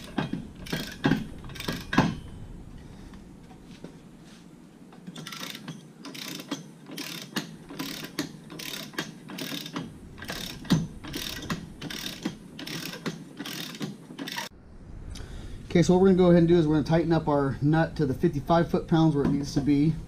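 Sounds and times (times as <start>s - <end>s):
torque wrench ratcheting: 0.0s - 2.2s, 5.2s - 14.5s.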